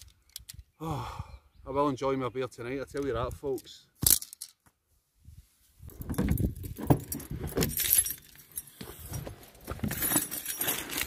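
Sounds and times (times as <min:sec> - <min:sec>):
camping gear rattling and clinking: 0:03.6 - 0:04.6, 0:05.8 - 0:11.0.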